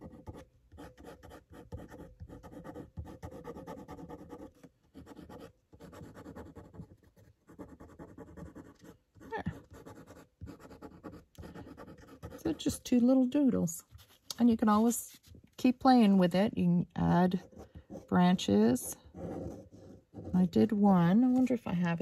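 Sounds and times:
pen nib scratching on paper: 0.0 - 12.8, 17.3 - 20.7.

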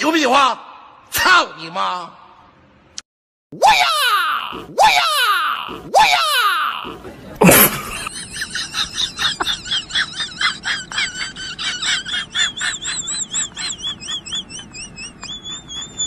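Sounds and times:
high-pitched chirping: 12.8 - 16.0
warbling whistle: 13.5 - 16.0.

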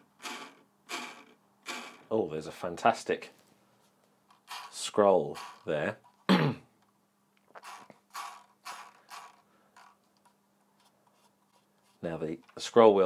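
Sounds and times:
mouse scroll wheel spinning: 0.2 - 2.0, 4.3 - 5.7, 7.6 - 12.6.

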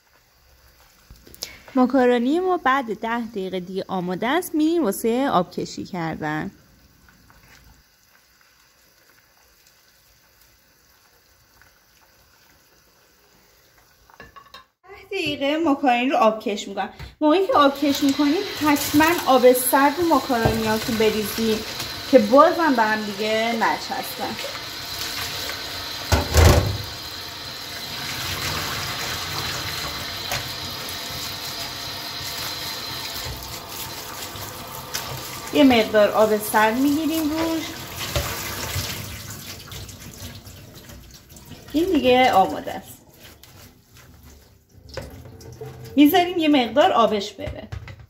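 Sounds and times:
pot bubbling at a boil: 0.0 - 4.2, 6.6 - 14.6, 17.6 - 46.4
tap water splashing into sink: 20.2 - 22.1, 24.3 - 27.0, 33.1 - 35.5, 37.2 - 41.8, 44.8 - 46.0.

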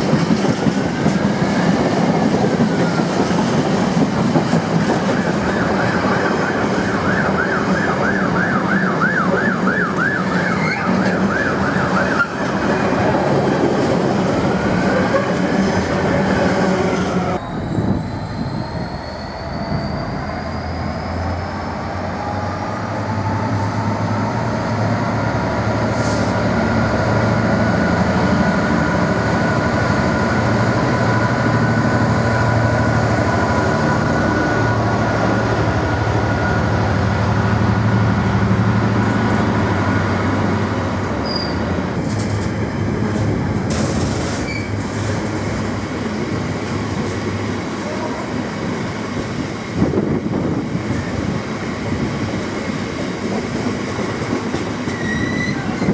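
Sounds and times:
diesel locomotive engine droning: 0.0 - 55.9
wagons clattering over rails: 42.0 - 45.4.

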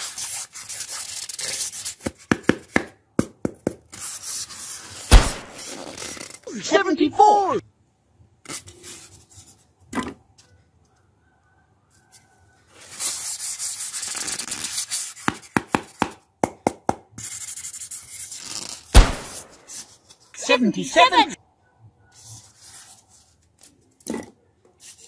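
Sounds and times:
polystyrene foam rubbing and scraping: 0.0 - 2.0, 3.9 - 6.4, 12.7 - 15.3, 17.4 - 20.0
loud thump: 5.1 - 5.6.

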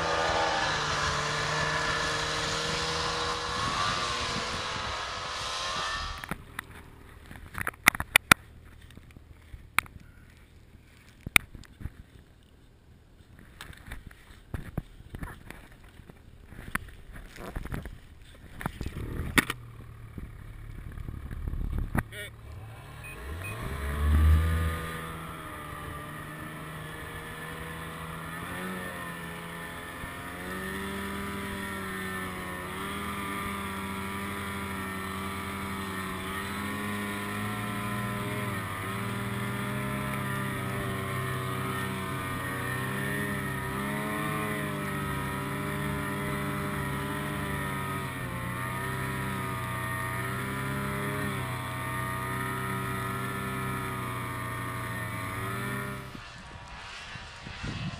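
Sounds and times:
snowmobile engine running: 0.0 - 9.6, 15.2 - 57.9.

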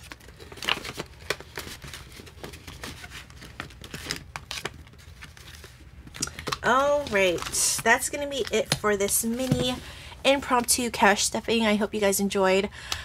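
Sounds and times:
banknotes rustling: 0.0 - 10.0.

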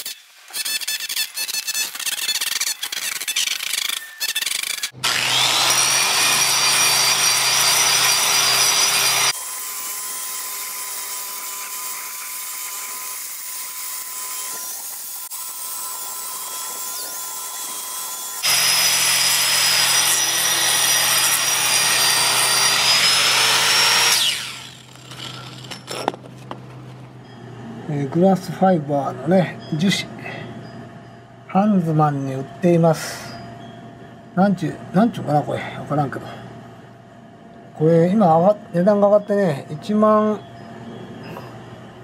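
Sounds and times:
angle grinder grinding concrete: 0.8 - 26.3.

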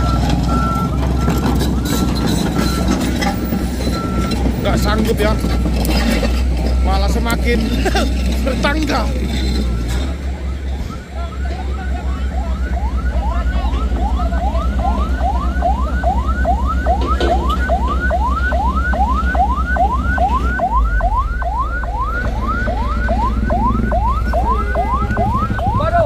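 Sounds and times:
engine running: 0.0 - 26.0
ambulance siren yelping: 10.1 - 26.0.

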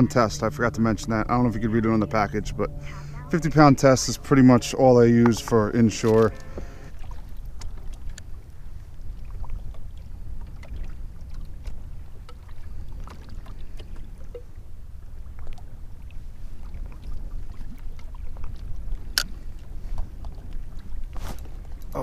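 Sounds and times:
steady low rumble: 0.0 - 17.4
water lapping against a kayak hull: 0.0 - 22.0.

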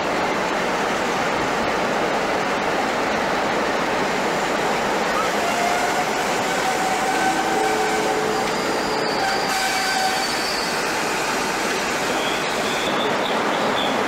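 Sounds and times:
diesel locomotive rumble: 0.0 - 14.0
faint wheel squeals: 7.9 - 11.3.

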